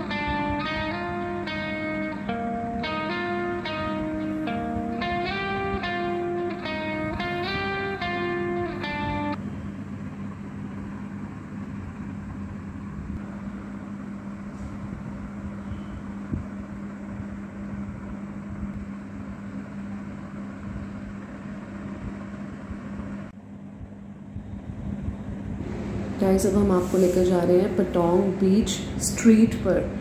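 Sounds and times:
mechanical drone with hiss: 11.7s - 16.9s, 24.4s - 30.0s.

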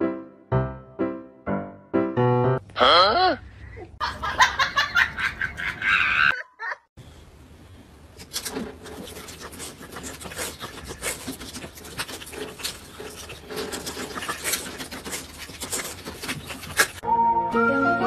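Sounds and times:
music: 0.0s - 2.6s, 17.0s - 18.0s.

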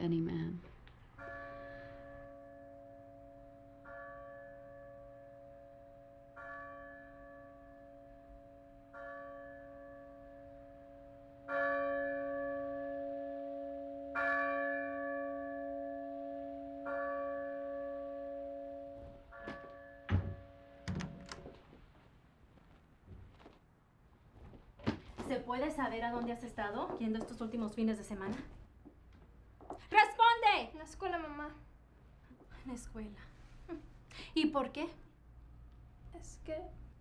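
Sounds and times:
large church bell tolling: 1.2s - 20.9s.

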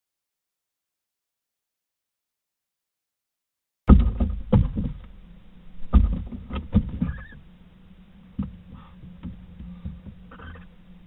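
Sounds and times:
owl feet knocking and scuffling: 3.9s - 5.1s, 5.8s - 7.4s.

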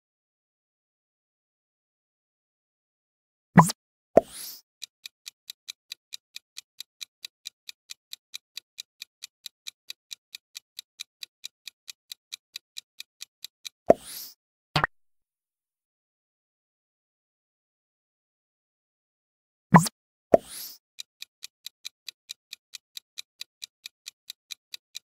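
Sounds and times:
clock ticking timer: 4.4s - 14.3s, 19.8s - 25.0s.

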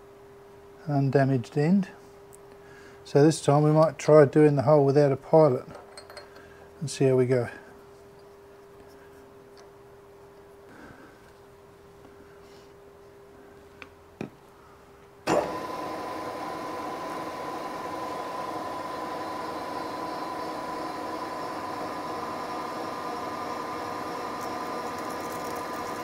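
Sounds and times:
drill cutting metal: 15.3s - 26.0s
milling machine running: 15.3s - 26.0s.

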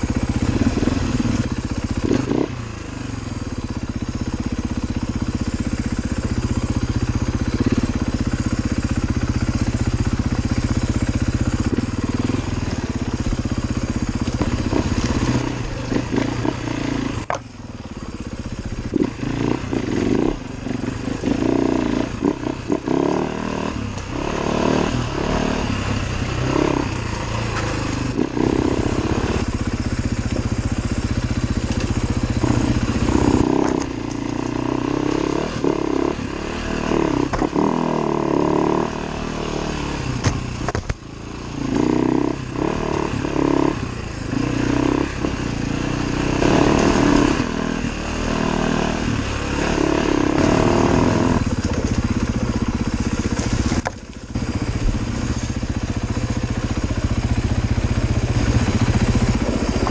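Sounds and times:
motorcycle engine revving: 0.0s - 59.9s.

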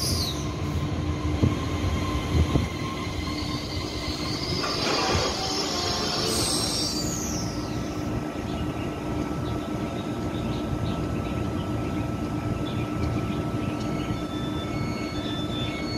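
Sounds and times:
train brake squeal: 0.0s - 8.2s, 13.8s - 15.9s
standing train humming: 0.0s - 15.9s.

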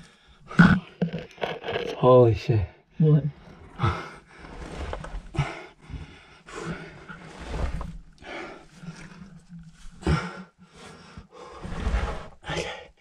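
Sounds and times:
camera scraping against rock: 0.5s - 2.1s, 3.4s - 5.5s, 6.6s - 10.0s.

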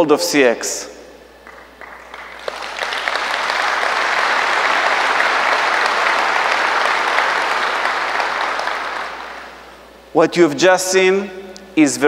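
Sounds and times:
audience applauding: 1.4s - 9.8s.

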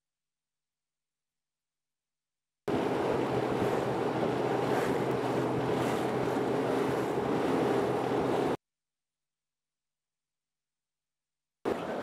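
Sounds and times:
water rushing along hull: 2.7s - 8.6s, 11.7s - 12.0s
wind buffeting microphone: 2.7s - 8.6s.

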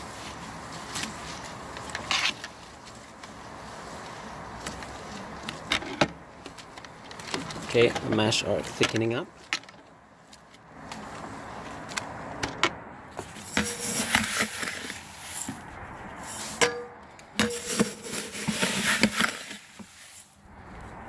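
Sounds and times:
grain rustling and pouring: 13.4s - 15.6s, 17.5s - 20.4s.

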